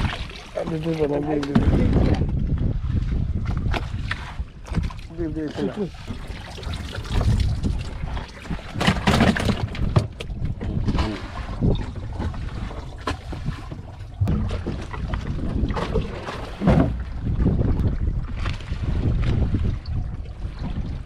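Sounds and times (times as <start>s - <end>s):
wind rumbling on microphone: 0.0s - 21.0s
fish clattering into icebox: 8.6s - 10.3s.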